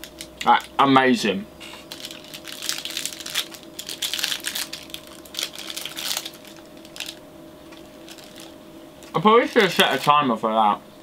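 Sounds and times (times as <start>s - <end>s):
plastic wrapper crinkling: 1.8s - 10.2s.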